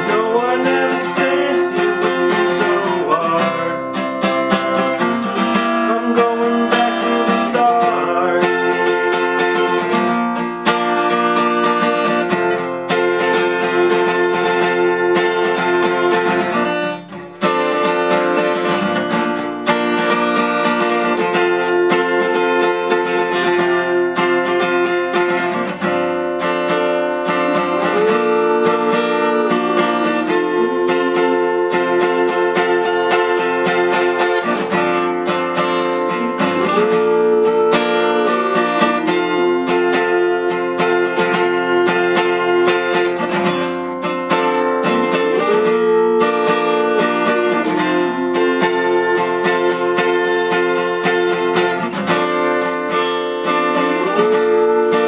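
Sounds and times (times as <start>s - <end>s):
wordless singing: 0.0s - 9.8s, 26.8s - 43.5s, 44.6s - 51.8s, 53.5s - 55.0s
acoustic guitar strumming: 0.0s - 55.0s.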